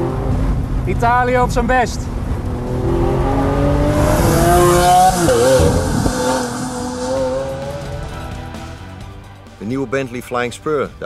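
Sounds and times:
sports car engine accelerating: 2.1 - 8.8.

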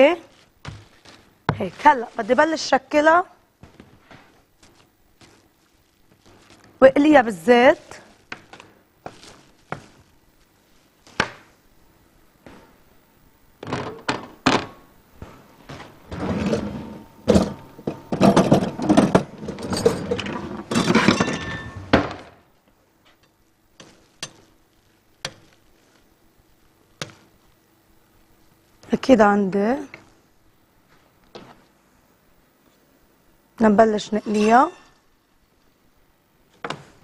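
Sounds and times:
pots and pans clattering: 16.1 - 22.1.

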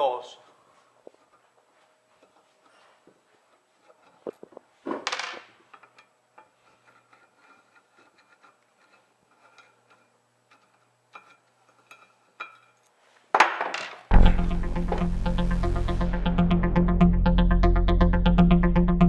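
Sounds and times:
metal scrape: 5.9 - 12.9.

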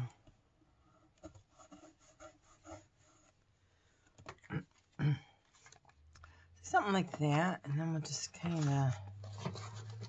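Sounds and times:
paper and tissue rustling: 8.0 - 10.0.

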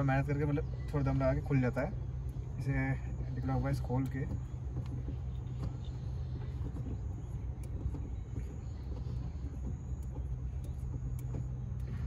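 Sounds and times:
steady low rumble: 0.0 - 12.0.

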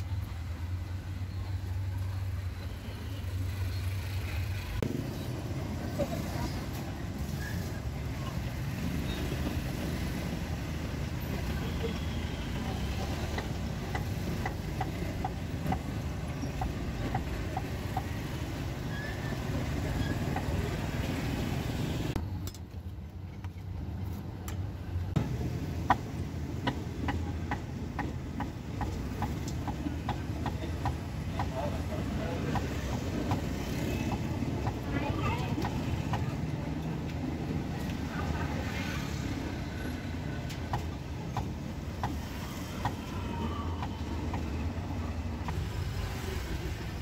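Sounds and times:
street traffic rumble: 0.0 - 47.0.

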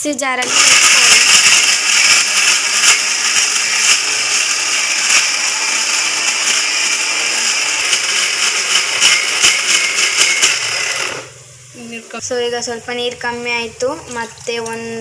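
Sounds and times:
electric mixer grinder running: 0.4 - 11.4.

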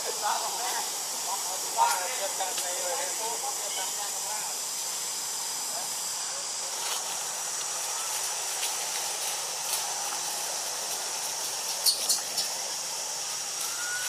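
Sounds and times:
high-pitched insect drone: 0.0 - 14.0.

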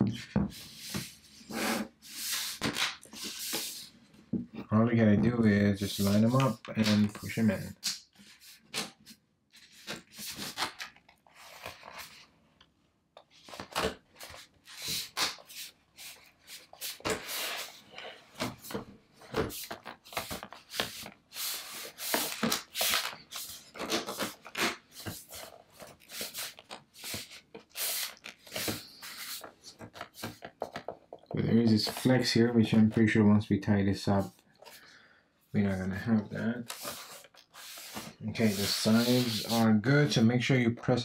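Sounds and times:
rubbing and scraping on plastic: 13.3 - 33.0, 35.6 - 40.3.

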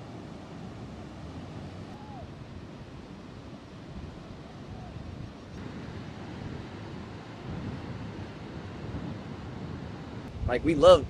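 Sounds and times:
surf breaking and rushing ashore: 0.0 - 11.0
wind buffeting microphone: 0.0 - 11.0.

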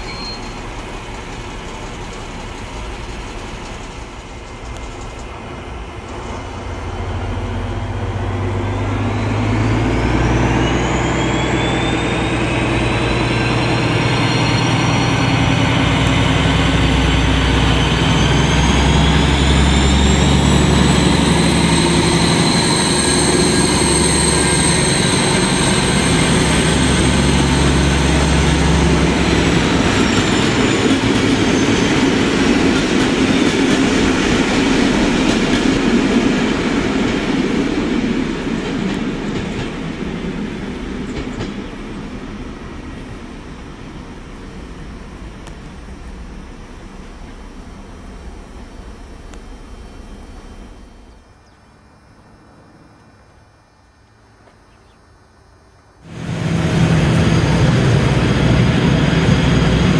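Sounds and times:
train coaches rolling over track: 0.0 - 51.3, 56.1 - 59.9
diesel locomotive engine: 0.0 - 54.5, 55.9 - 59.9
high turbocharger whine: 5.6 - 38.4, 56.0 - 59.9.

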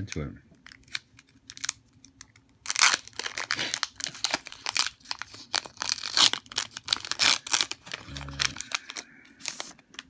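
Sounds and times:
foil wrapper crinkling and tearing: 0.6 - 10.0.

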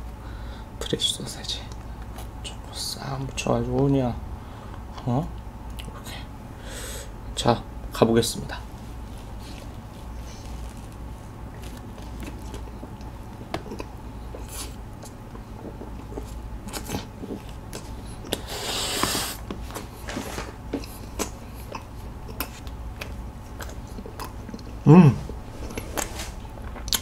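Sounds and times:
tissue rustling: 8.8 - 12.2
close chewing with mouth clicks: 9.5 - 19.2, 20.7 - 24.8, 25.6 - 27.0.

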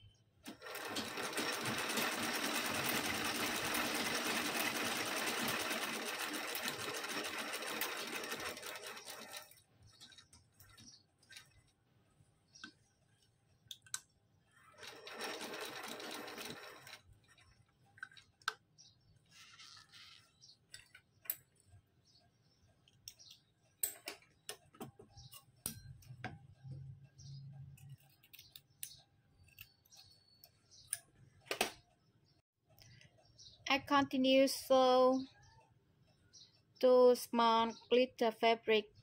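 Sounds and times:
sewing machine rattling: 0.4 - 11.6, 14.6 - 18.2
rustling: 19.2 - 20.6.

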